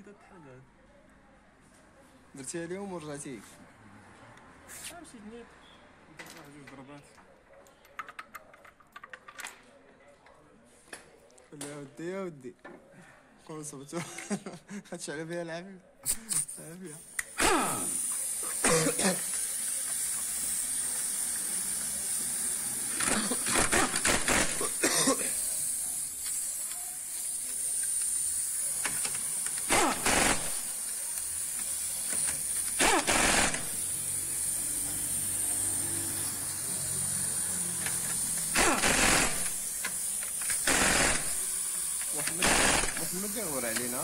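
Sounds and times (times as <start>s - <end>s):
impact wrench hammering: 23.0s - 24.9s, 28.8s - 33.9s, 37.8s - 44.0s.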